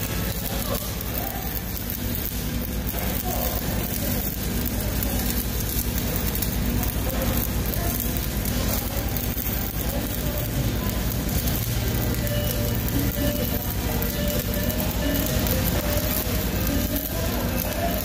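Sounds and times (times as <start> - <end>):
welding arc crackling: 0.0 - 18.0.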